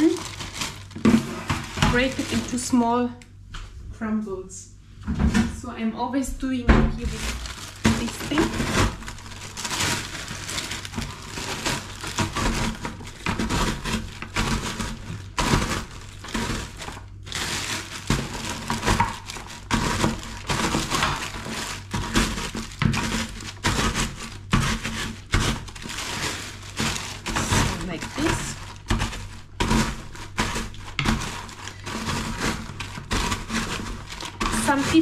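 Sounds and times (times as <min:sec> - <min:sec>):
crumble crunching under rolling pin: 0:00.0 - 0:03.1, 0:06.6 - 0:35.0
plastic bag crinkling: 0:00.0 - 0:03.1, 0:06.9 - 0:35.0.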